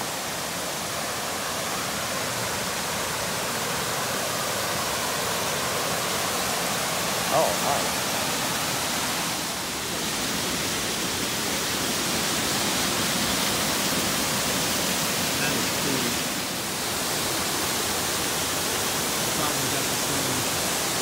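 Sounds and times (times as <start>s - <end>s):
creek water rushing over rocks: 0.0s - 21.0s.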